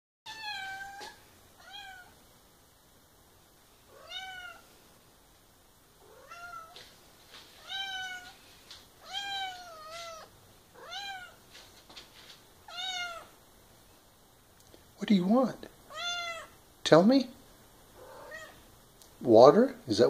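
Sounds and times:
cat meowing: 0.3s - 2.2s, 3.9s - 4.7s, 6.0s - 6.8s, 7.6s - 8.4s, 9.0s - 11.4s, 12.6s - 13.4s, 15.9s - 16.6s, 18.0s - 18.6s.

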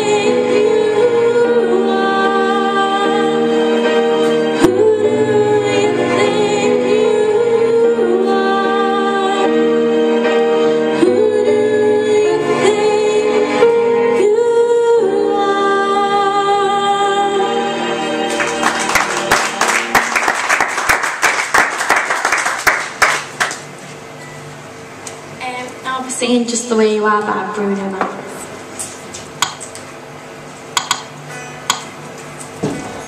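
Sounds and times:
woman singing into microphone: 0.0s - 18.6s
accompanying music: 0.0s - 23.0s
audience clapping: 18.3s - 23.7s.

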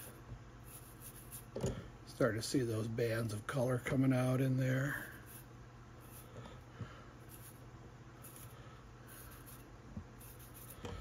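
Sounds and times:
razor blade scratching hair: 0.0s - 1.5s, 5.1s - 6.3s, 7.2s - 7.6s, 8.2s - 10.9s.

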